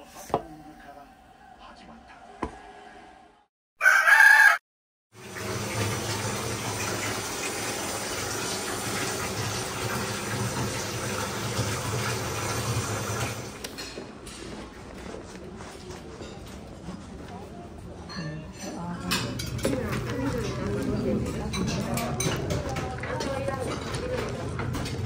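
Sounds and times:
water running into bathtub: 5.1s - 13.6s.

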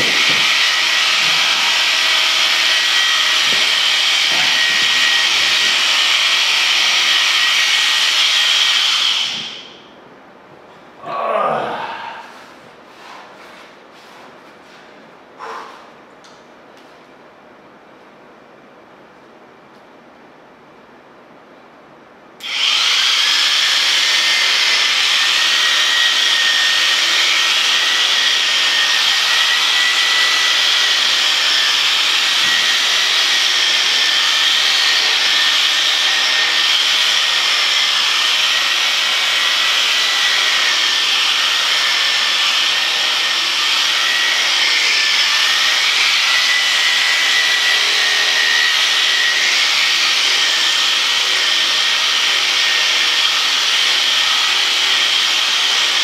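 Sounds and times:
electric sheep shears whining: 0.0s - 9.8s, 22.4s - 56.0s.

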